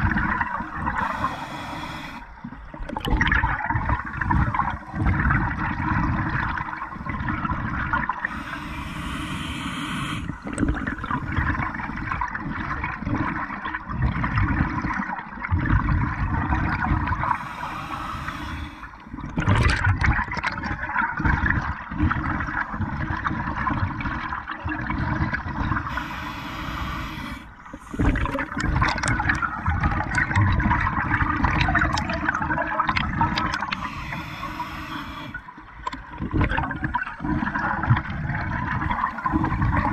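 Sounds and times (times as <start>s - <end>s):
exhaled bubbles rushing: 0.0s - 1.2s, 2.4s - 8.4s, 10.0s - 17.4s, 18.9s - 26.0s, 27.5s - 39.9s
regulator inhale hiss: 0.9s - 2.4s, 8.2s - 11.8s, 17.3s - 19.0s, 25.9s - 28.5s, 33.5s - 35.5s.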